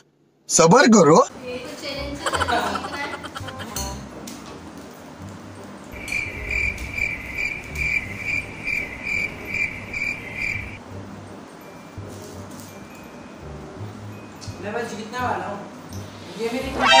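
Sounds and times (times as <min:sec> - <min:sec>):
cricket chirping: 0:06.0 - 0:10.8.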